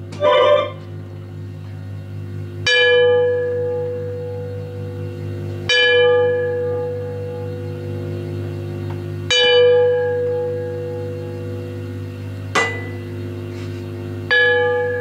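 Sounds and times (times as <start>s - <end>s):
low wavering drone: 0.0s - 15.0s
bell-like tone struck: 0.2s - 0.8s, 2.6s - 8.4s, 9.3s - 13.4s, 14.3s - 15.0s.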